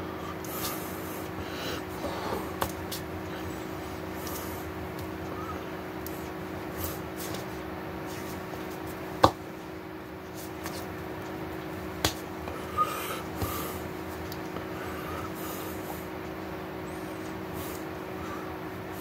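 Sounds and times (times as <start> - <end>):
electrical room hum: 0.0 - 19.0
hands slapping: 12.0 - 12.3.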